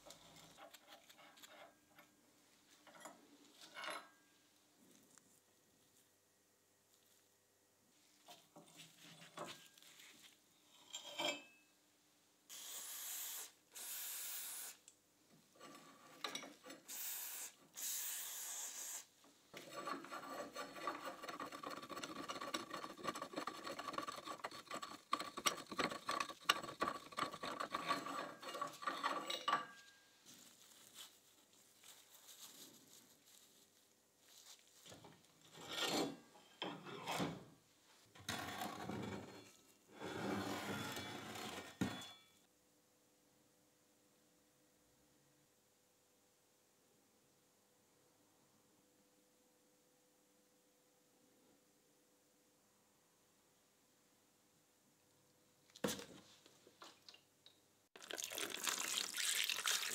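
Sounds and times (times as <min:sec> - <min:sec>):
metal scrapes and clinks: 0:10.6 - 0:11.6, 0:27.1 - 0:30.0
metal rasping on metal: 0:19.6 - 0:29.4.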